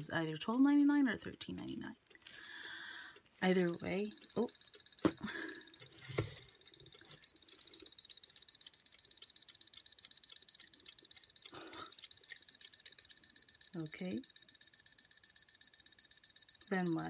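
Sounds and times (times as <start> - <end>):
kitchen timer alarm beeping: 3.4 - 17.0.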